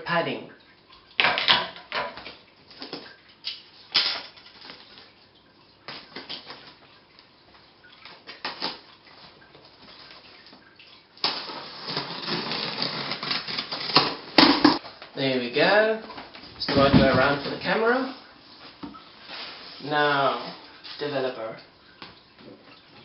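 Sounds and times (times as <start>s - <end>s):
packing tape peeling off: 11.2s - 14.5s
tape scraping and tearing: 11.2s - 14.8s.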